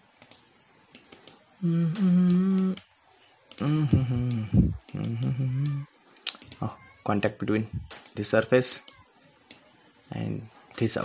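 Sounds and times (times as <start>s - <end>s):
computer mouse clicks: 0.2s - 1.4s, 4.3s - 6.6s
man humming: 1.6s - 2.8s, 3.6s - 5.9s.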